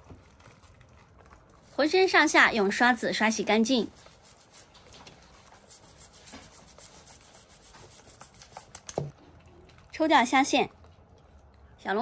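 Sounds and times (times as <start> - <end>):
brush scrubbing shells: 1.6 - 8.8.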